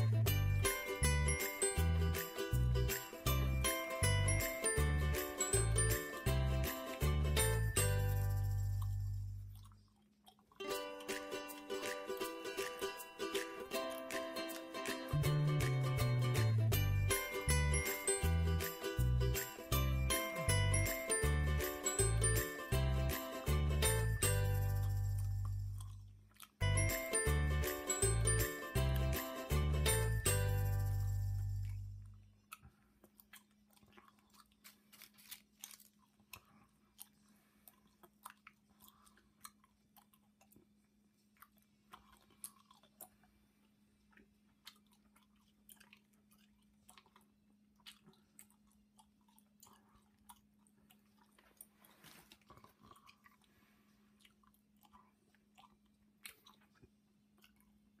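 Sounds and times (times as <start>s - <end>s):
cat chewing crinkly wrapper: 32.8s - 43.6s.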